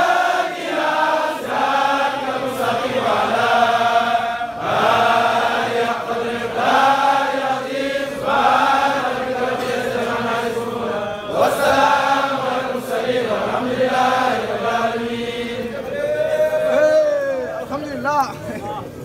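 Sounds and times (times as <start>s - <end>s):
men chanting in unison: 0.0s - 17.5s.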